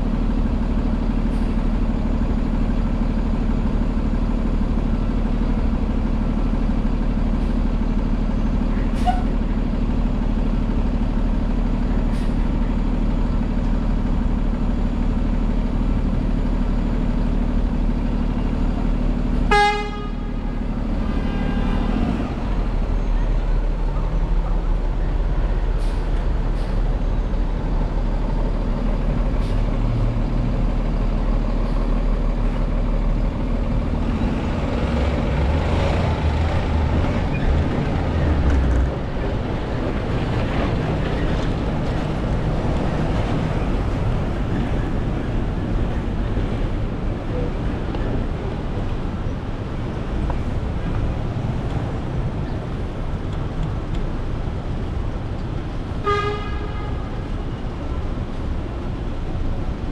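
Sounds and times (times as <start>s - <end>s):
car engine rumble: 0.0s - 59.9s
city traffic: 0.0s - 59.9s
vehicle horn toot: 19.5s - 20.4s, 21.1s - 21.8s, 56.0s - 57.0s.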